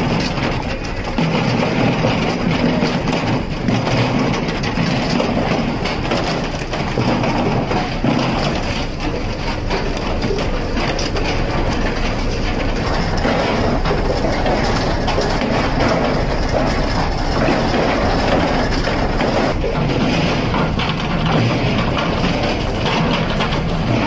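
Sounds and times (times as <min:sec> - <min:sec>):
deck machinery rumble: 0:00.0 - 0:24.0
frozen fish clattering on metal chute: 0:00.0 - 0:24.0.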